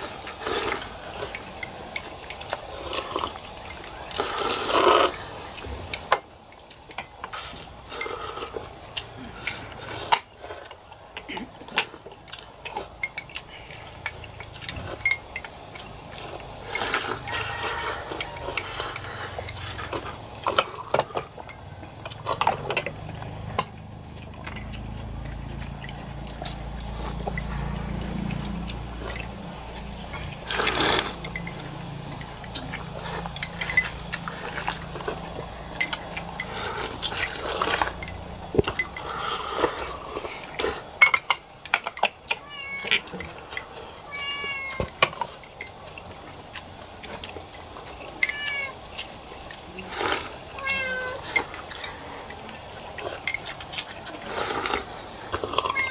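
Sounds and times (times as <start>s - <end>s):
slurping noodle broth: 0.0s - 6.1s, 7.2s - 10.8s, 11.4s - 21.4s, 22.0s - 41.0s, 49.8s - 55.9s
utensils and bowls clinking: 0.0s - 55.9s.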